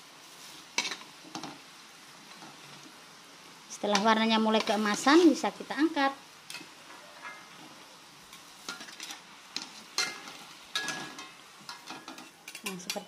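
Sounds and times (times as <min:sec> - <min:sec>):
food sizzling in hot oil: 0:00.0 - 0:13.0
metal strainer clinking on wok: 0:10.0 - 0:13.0.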